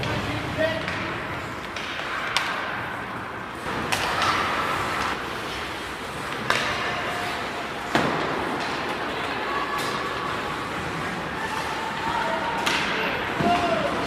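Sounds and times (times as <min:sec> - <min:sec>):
hockey stick cracking puck: 0:00.8 - 0:02.8, 0:03.6 - 0:05.6, 0:06.2 - 0:07.2.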